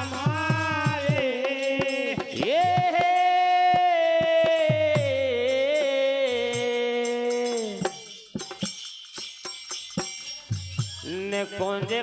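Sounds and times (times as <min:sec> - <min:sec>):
wooden clappers with jingles: 0:06.4 - 0:12.0.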